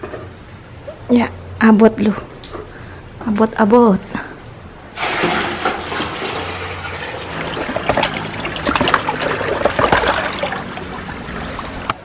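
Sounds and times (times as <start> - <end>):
water pouring and splashing: 5.0 - 12.0.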